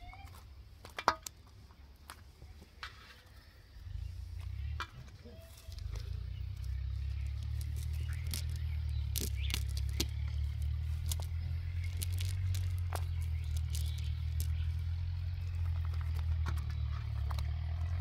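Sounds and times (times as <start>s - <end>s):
steady low rumble: 3.4s - 18.0s
fishing net rustling and clicking: 6.6s - 14.8s.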